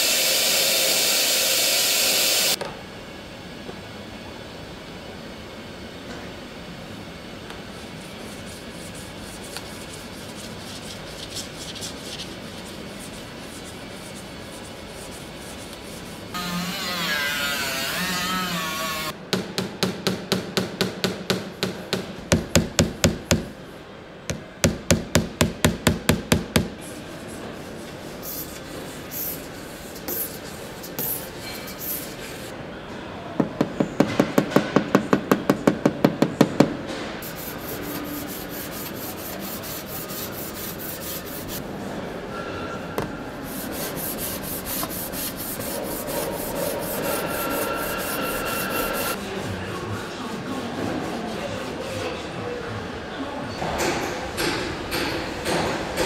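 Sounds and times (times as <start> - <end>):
loud rasping on metal: 43.5 - 49.2
scraping on metal: 43.5 - 49.2.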